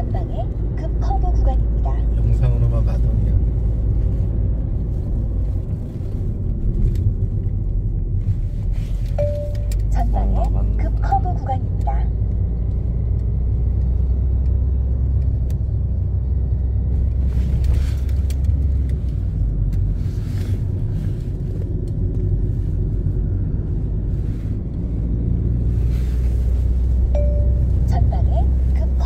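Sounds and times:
car engine and tyre rumble: 0.0s - 29.0s.

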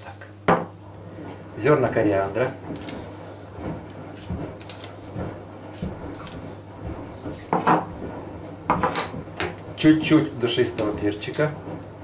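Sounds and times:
spoon clinking in glass jar: 0.0s - 0.3s, 8.9s - 11.5s.

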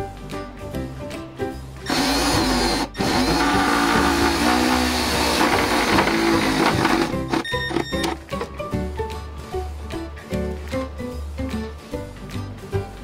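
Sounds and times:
power drill driving screw: 1.9s - 8.1s.

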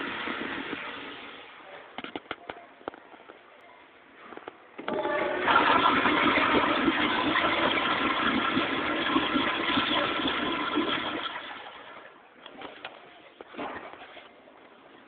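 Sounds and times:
toilet flushing: 0.0s - 1.6s, 4.8s - 12.2s.

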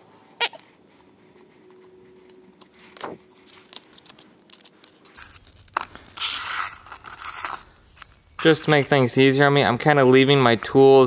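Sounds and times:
small metal parts clinking: 3.0s - 8.8s.

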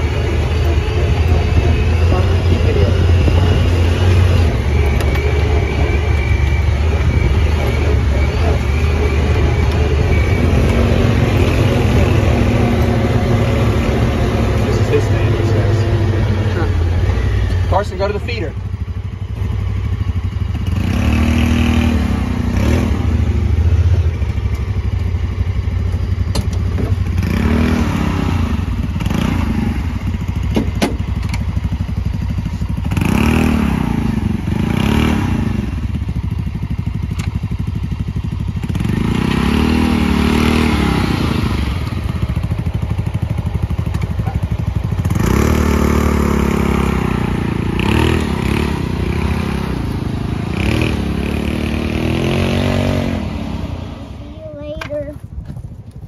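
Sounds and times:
small utility vehicle engines revving: 0.0s - 55.4s
thuds and clatter from bumpy ride: 25.8s - 27.4s, 30.1s - 33.0s, 42.1s - 45.6s, 54.6s - 56.0s.

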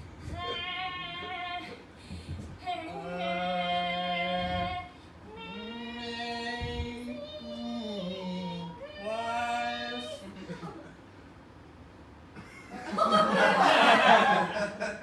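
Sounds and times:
voices singing long notes: 2.6s - 10.3s.

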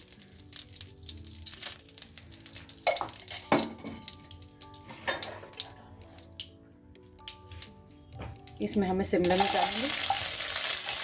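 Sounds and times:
faint background music: 0.0s - 11.0s
spoon clinking against dishes: 2.8s - 5.8s.

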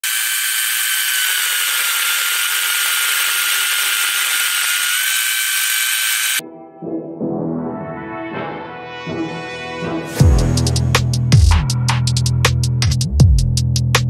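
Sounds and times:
pole saw whining: 0.0s - 6.4s.

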